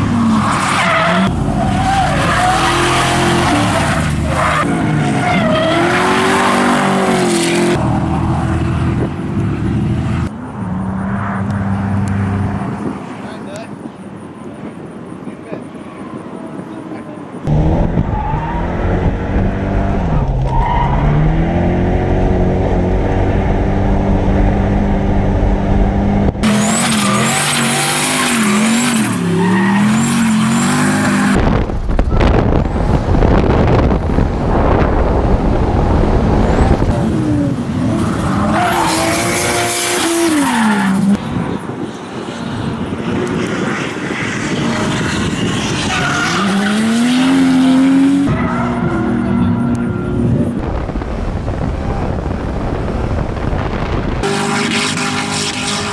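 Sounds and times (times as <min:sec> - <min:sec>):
car engines revving: 0:00.0 - 0:55.9.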